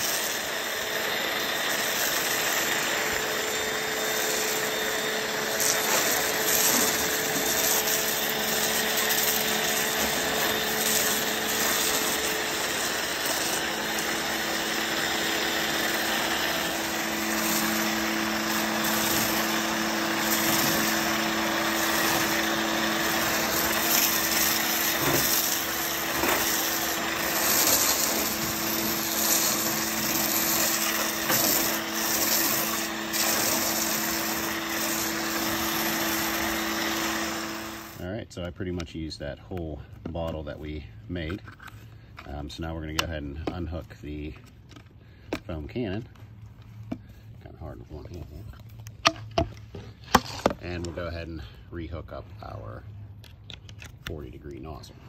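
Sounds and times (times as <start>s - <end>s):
foam spray hissing: 0.0s - 0.4s, 5.5s - 14.2s, 15.7s - 38.0s
pressure washer motor hum: 0.0s - 38.1s.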